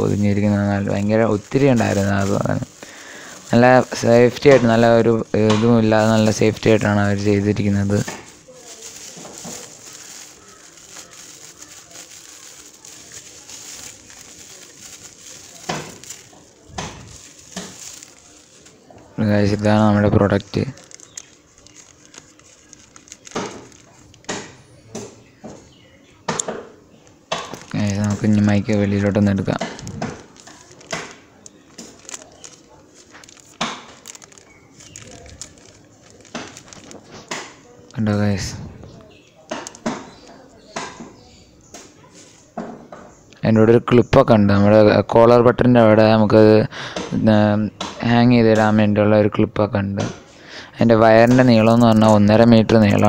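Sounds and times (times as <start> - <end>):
bubble wrap crinkling: 0.0 - 25.6, 27.0 - 41.0, 50.8 - 53.0
sharp crackles or knocks: 7.6 - 18.7, 20.4 - 25.6, 27.3 - 37.6.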